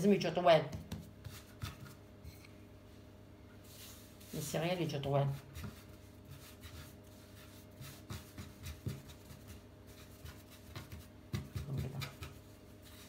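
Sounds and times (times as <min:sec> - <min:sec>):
hands rubbing bread dough: 0:00.7 - 0:02.5, 0:03.6 - 0:13.0
dough thumping on wooden board: 0:10.2 - 0:12.4.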